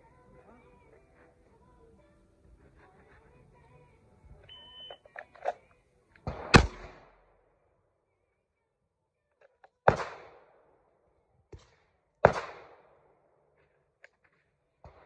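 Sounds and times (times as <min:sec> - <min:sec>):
shot timer beep: 0:04.5 - 0:05.1
pistol shots: 0:06.2 - 0:07.4, 0:09.8 - 0:10.7, 0:11.5 - 0:13.1.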